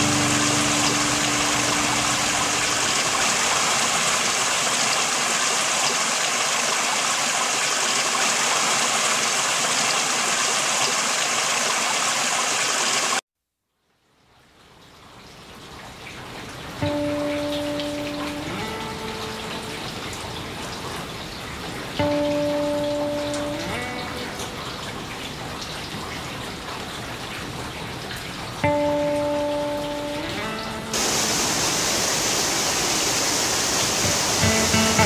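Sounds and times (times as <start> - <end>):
soft background music: 0.0 - 3.0, 16.8 - 20.5, 22.0 - 25.3, 28.6 - 31.0, 34.4 - 35.0
waterfall rushing: 0.0 - 13.2, 16.8 - 35.0.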